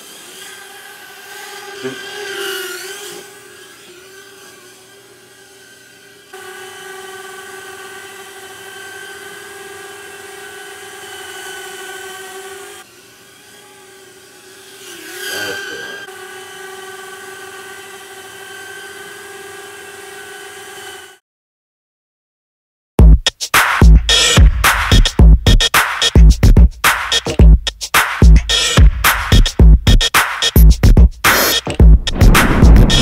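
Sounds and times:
micro quadcopter whine: 0:00.0 - 0:21.2.

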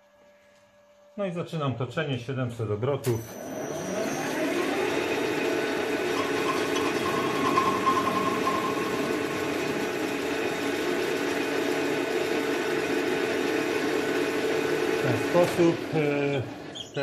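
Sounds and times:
metal lathe humming: 0:03.4 - 0:15.9
thin high tone: 0:06.0 - 0:10.5.

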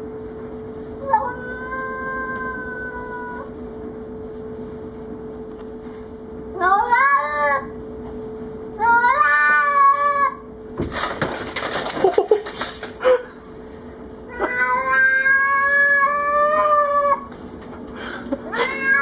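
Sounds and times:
cat yowling: 0:01.0 - 0:03.5, 0:06.6 - 0:07.7, 0:08.8 - 0:10.4, 0:14.3 - 0:17.3, 0:18.5 - 0:19.0
blinds and glass clattering: 0:10.8 - 0:13.2.

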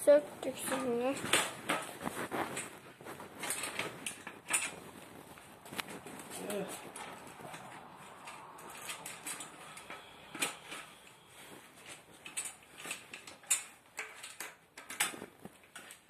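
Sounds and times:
bicycle parts clicking and knocking: 0:03.4 - 0:16.0.

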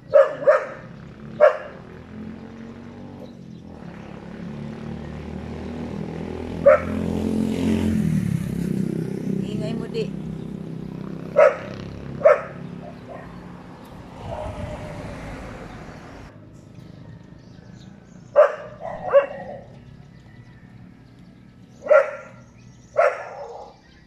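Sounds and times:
dog barking: 0:00.0 - 0:01.9, 0:06.6 - 0:07.1, 0:11.3 - 0:13.5, 0:18.3 - 0:19.7, 0:21.8 - 0:23.8.

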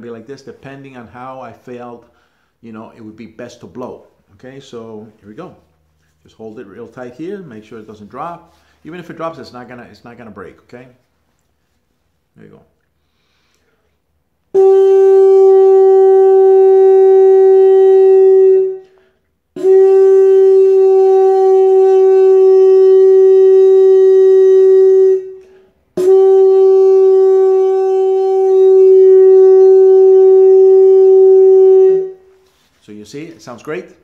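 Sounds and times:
horn blasts on one note: 0:14.5 - 0:32.7.

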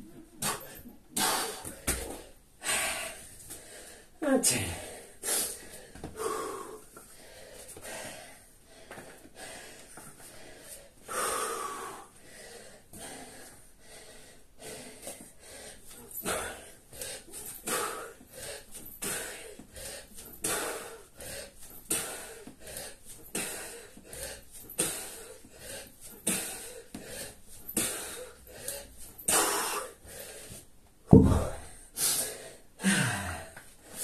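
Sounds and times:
kettlebell thud on rubber mat: 0:31.1 - 0:31.7
man exhaling forcefully: 0:32.8 - 0:33.5.

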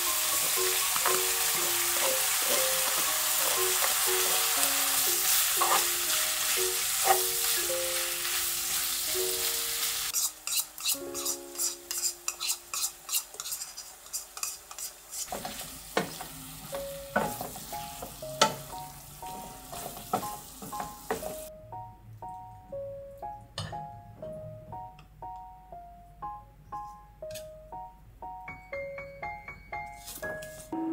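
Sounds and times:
soft piano music: 0:00.0 - 0:10.2, 0:10.8 - 0:12.9, 0:15.4 - 0:30.9
food sizzling in a wok: 0:00.0 - 0:21.5
spatula scraping and knocking pan: 0:05.2 - 0:06.0, 0:10.1 - 0:16.4, 0:17.1 - 0:18.7.

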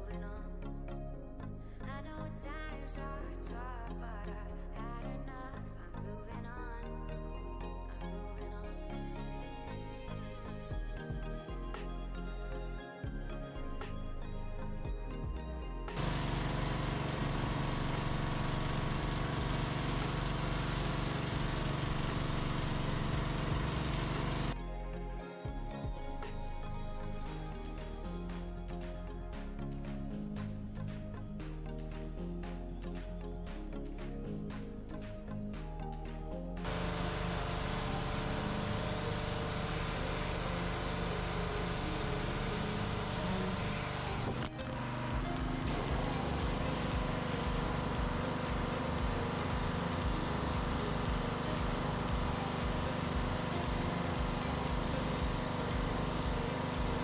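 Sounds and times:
music: 0:00.0 - 0:57.0
pressure washer engine running: 0:16.0 - 0:24.6, 0:36.6 - 0:57.0.

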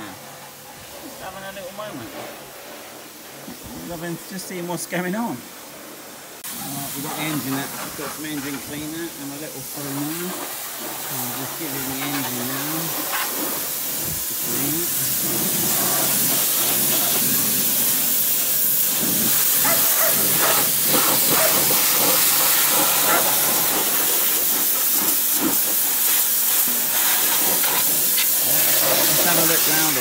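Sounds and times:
pressure washer spraying: 0:00.0 - 0:30.0
water spatter: 0:08.7 - 0:30.0.

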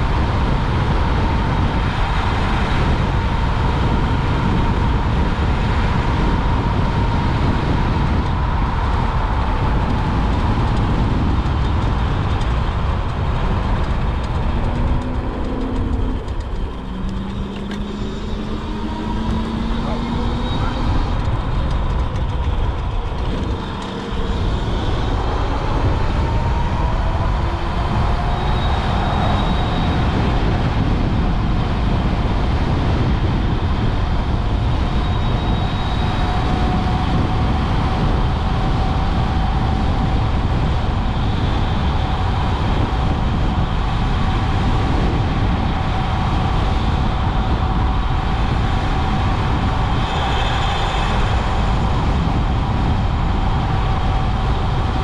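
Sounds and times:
tyre noise on paved road: 0:00.0 - 0:55.0
wind rushing over microphone: 0:00.0 - 0:55.0
electric motor whine: 0:02.6 - 0:55.0.

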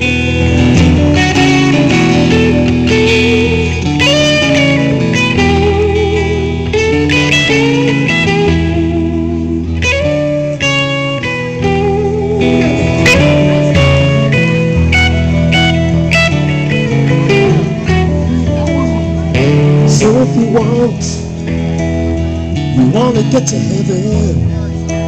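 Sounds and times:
blues electric guitar solo: 0:00.0 - 0:25.0.

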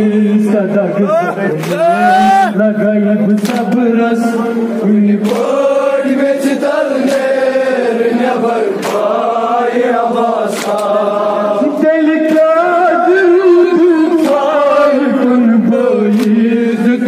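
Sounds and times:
male voices chanting a lament: 0:00.0 - 0:17.0
sharp slaps: 0:03.3 - 0:03.8, 0:05.2 - 0:05.6, 0:07.0 - 0:07.4, 0:08.8 - 0:09.2, 0:10.5 - 0:11.0, 0:16.1 - 0:16.4.

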